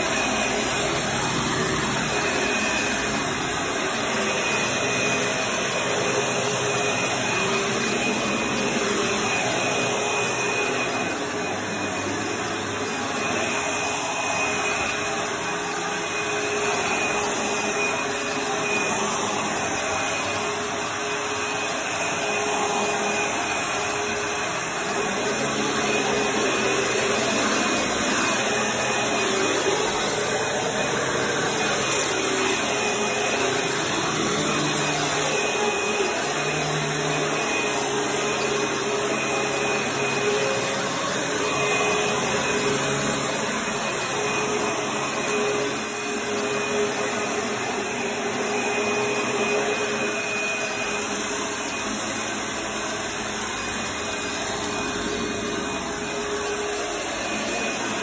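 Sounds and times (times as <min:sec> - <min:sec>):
vacuum cleaner running: 0:00.0 - 0:58.0.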